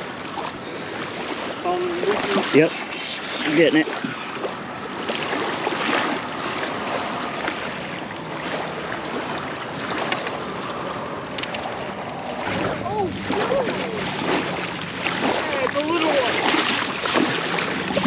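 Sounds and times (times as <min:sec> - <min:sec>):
water at shoreline: 0:00.0 - 0:18.0
wind on microphone: 0:09.2 - 0:18.0.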